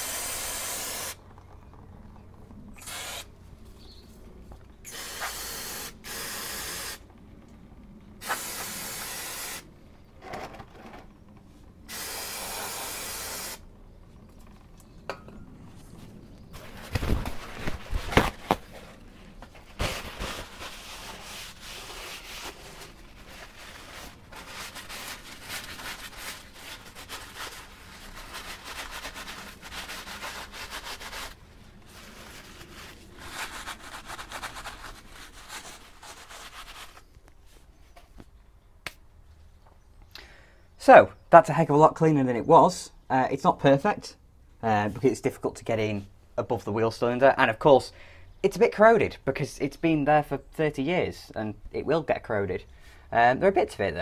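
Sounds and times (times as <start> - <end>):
aerosol spray hissing: 0.0 - 1.2, 2.8 - 3.3, 4.9 - 7.0, 8.2 - 9.7, 11.9 - 13.6.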